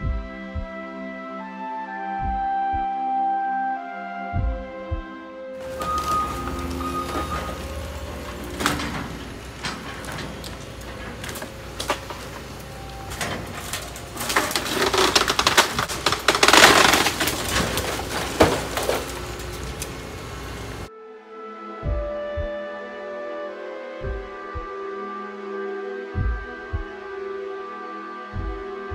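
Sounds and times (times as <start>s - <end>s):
crackling crash: 5.6s - 20.9s
debris cracking and crunching: 5.6s - 20.9s.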